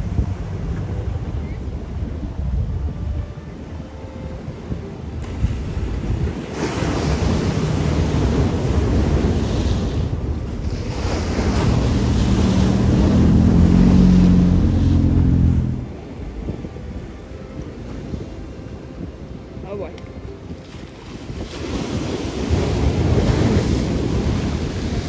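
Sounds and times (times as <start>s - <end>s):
ocean waves crashing on rocks: 5.1s - 16.6s, 20.5s - 25.0s.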